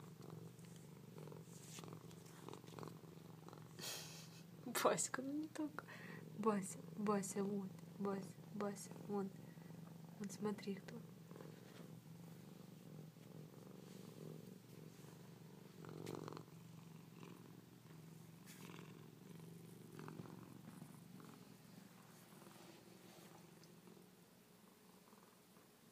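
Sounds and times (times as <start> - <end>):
cat purring: 0.0 - 25.9.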